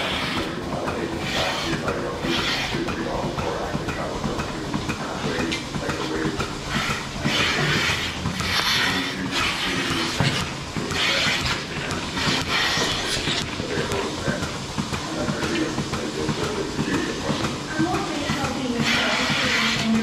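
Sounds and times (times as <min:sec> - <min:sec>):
milking machine clatter: 0:00.0 - 0:20.0
hissing air bursts: 0:04.9 - 0:20.0.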